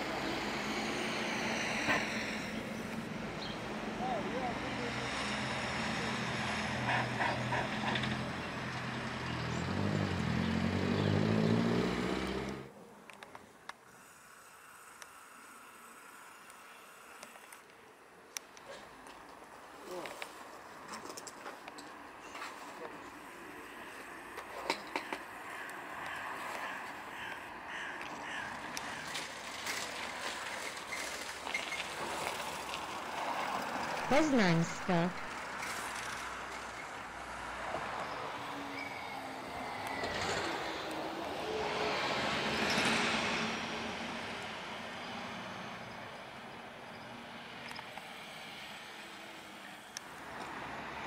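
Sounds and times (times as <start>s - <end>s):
bus engine accelerating: 0.0s - 12.7s, 28.6s - 51.0s
faint outdoor background: 0.0s - 51.0s
short high squeaks: 38.7s - 39.3s.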